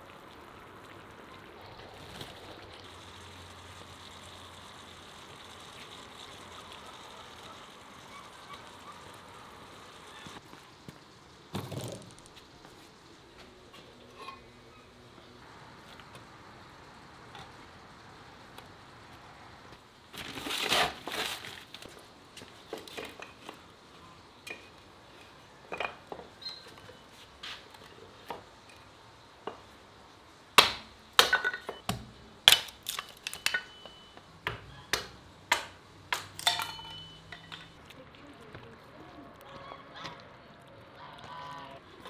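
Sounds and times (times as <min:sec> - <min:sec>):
hatchet chopping wood: 0:30.6 - 0:32.9, 0:34.5 - 0:36.4
wood pieces clattering: 0:35.5 - 0:37.8.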